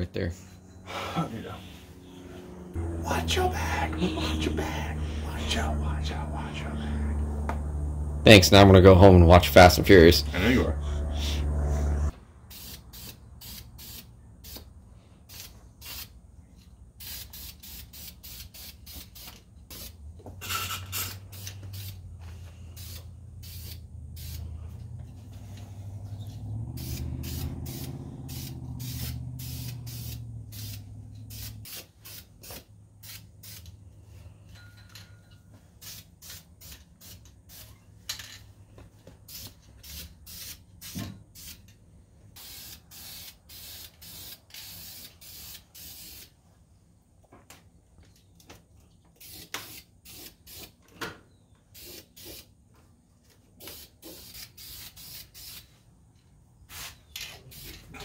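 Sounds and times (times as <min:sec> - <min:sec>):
low hum: 0:00.3 - 0:12.2
spray paint hissing bursts: 0:12.5 - 0:14.7, 0:15.3 - 0:16.2, 0:17.0 - 0:20.0, 0:20.9 - 0:22.0, 0:22.7 - 0:24.5, 0:26.8 - 0:33.7, 0:35.8 - 0:37.8, 0:39.2 - 0:41.6, 0:42.4 - 0:46.4, 0:49.2 - 0:50.8, 0:51.7 - 0:52.5, 0:53.6 - 0:55.8, 0:56.7 - 0:57.9.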